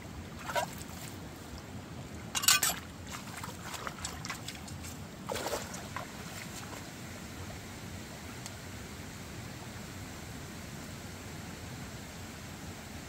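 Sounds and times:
hands splashing in stream water: 2.4s - 6.9s
steady hiss: 6.2s - 13.0s.

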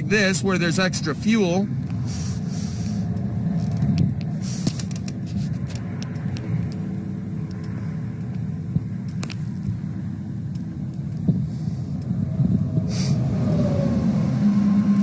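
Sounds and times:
vehicle low rumble: 0.0s - 15.0s
faint clicks: 3.1s - 9.8s, 10.4s - 12.1s.

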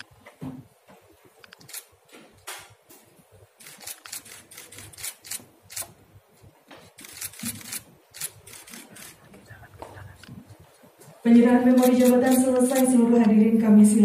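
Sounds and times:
camera shutters clicking: 1.5s - 1.9s, 3.6s - 6.0s, 6.9s - 9.2s, 11.7s - 13.0s.

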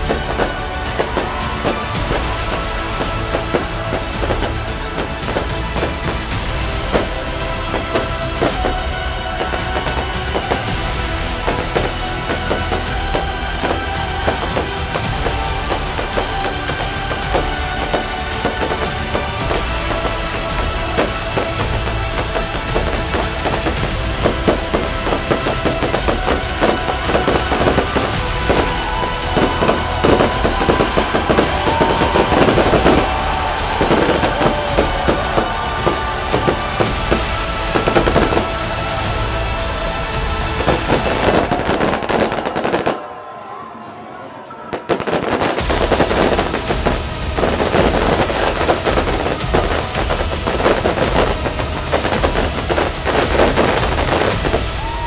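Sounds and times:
fireworks bangs and crackling: 0.0s - 43.9s, 44.6s - 55.0s
music playing: 0.0s - 55.0s.

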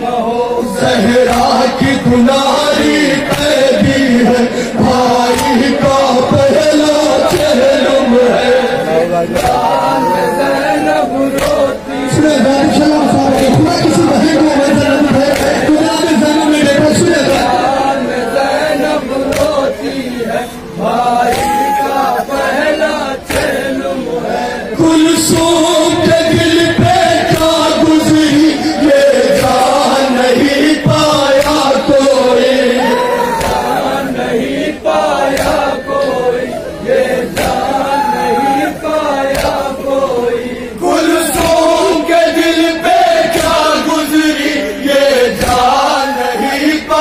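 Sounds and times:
men chanting in unison: 0.0s - 47.0s
hands slapping chests: 7.2s - 7.6s, 11.4s - 11.6s, 15.3s - 15.6s, 19.3s - 19.6s, 21.3s - 21.6s, 23.3s - 23.6s, 33.4s - 33.7s, 35.3s - 35.7s, 37.4s - 37.7s, 39.3s - 39.7s.

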